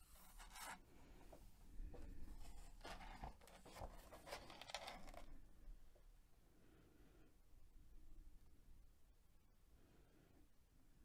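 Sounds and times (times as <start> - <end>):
paper pages rustling: 2.3 - 5.4.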